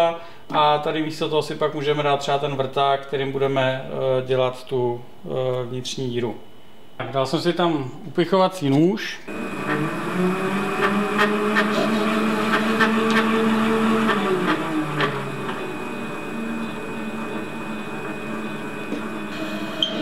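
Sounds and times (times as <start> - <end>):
metal lathe whining: 9.3 - 20.0.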